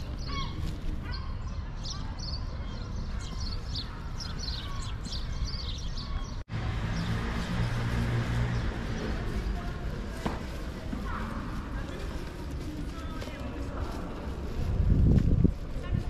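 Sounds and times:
small birds chirping: 0:00.0 - 0:07.2
wind: 0:00.0 - 0:16.0
background murmur: 0:08.2 - 0:16.0.

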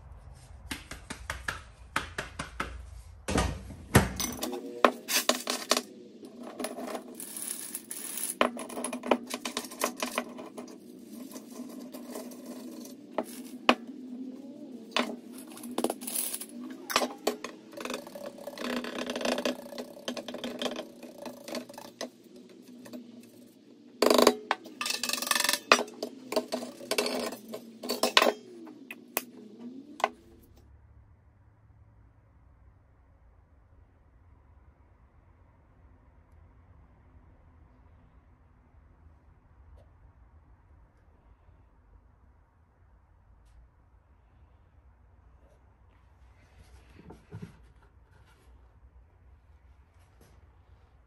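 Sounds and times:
metal clinking and knocking: 0:04.0 - 0:13.9, 0:14.9 - 0:30.2
metal scraping: 0:04.2 - 0:30.4.

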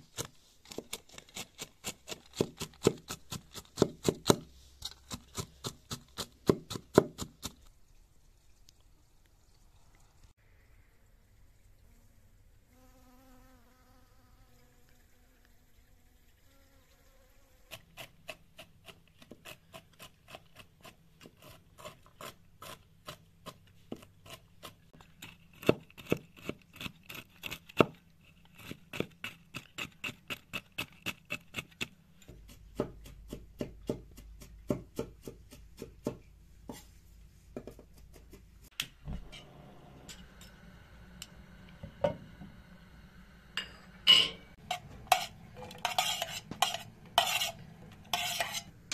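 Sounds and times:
knife chopping on wooden board: 0:00.7 - 0:07.6, 0:28.6 - 0:36.2
honeybee buzzing: 0:12.8 - 0:17.8.

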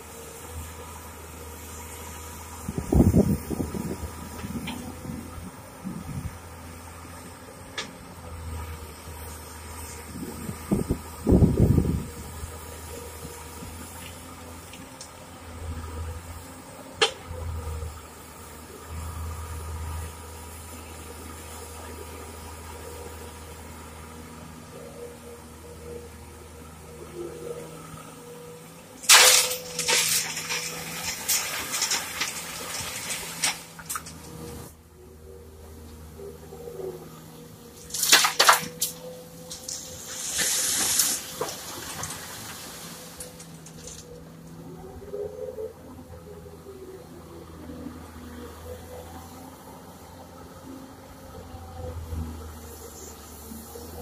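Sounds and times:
excavator diesel engine droning: 0:00.0 - 0:54.0
gravel clanking on steel: 0:29.0 - 0:34.7, 0:37.7 - 0:44.6
gravel pouring: 0:29.0 - 0:34.7, 0:37.8 - 0:44.1
steady hiss: 0:39.7 - 0:43.2.

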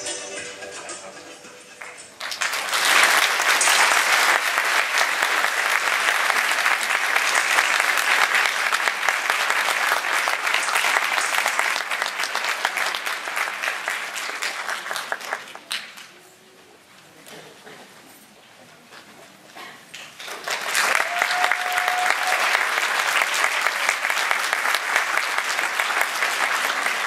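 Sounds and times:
audience applauding: 0:01.8 - 0:16.2, 0:19.9 - 0:27.0.

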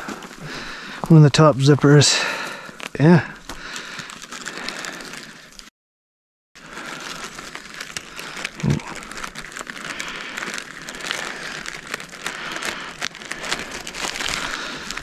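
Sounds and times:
plastic bag crinkling: 0:02.2 - 0:05.7, 0:06.6 - 0:15.0.

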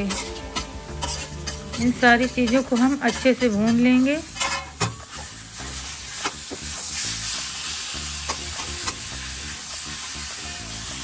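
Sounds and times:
spatula scraping a steel pan: 0:00.0 - 0:07.4
vegetables sizzling in oil: 0:00.0 - 0:11.0.

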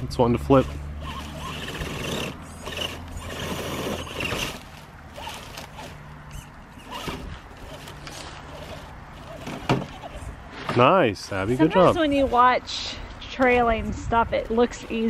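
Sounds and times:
toy car motor whirring: 0:00.4 - 0:10.6, 0:11.6 - 0:12.6.

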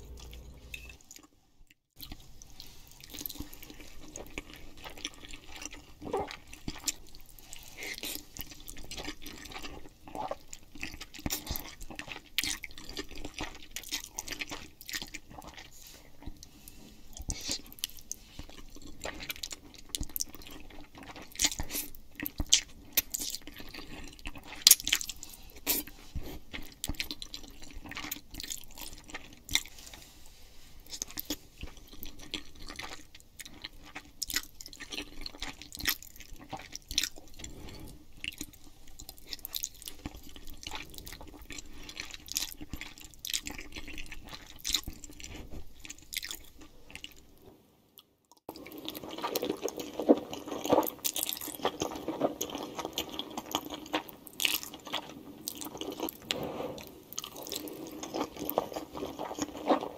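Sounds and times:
wet chewing: 0:30.9 - 0:47.3, 0:48.0 - 0:59.9
noodles being slurped: 0:48.5 - 0:59.9.

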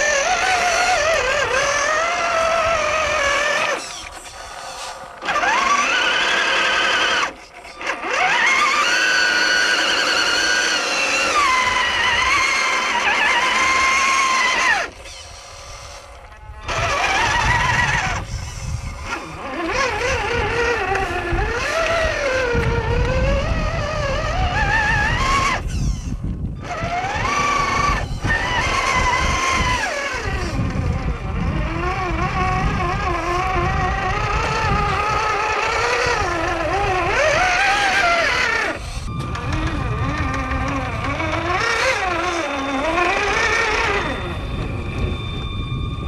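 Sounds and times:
electric motors whining: 0:00.0 - 0:46.0
tyres churning in wet mud: 0:05.0 - 0:15.0, 0:26.6 - 0:44.2.

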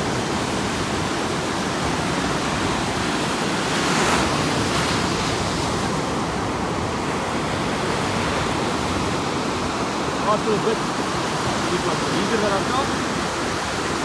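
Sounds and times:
ocean surf breaking: 0:00.0 - 0:14.0.

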